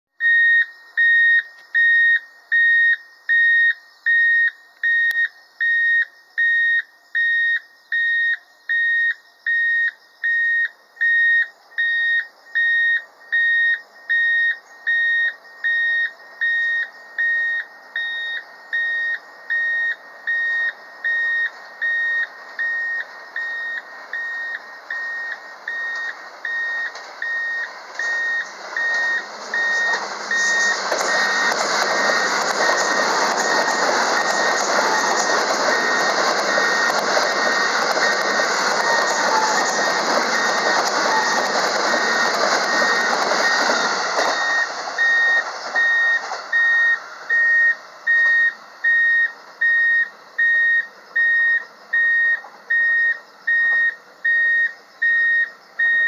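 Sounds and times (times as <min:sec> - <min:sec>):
railway crossing bell beeping: 0:09.5 - 0:49.1
electric train rumble: 0:11.5 - 0:50.4.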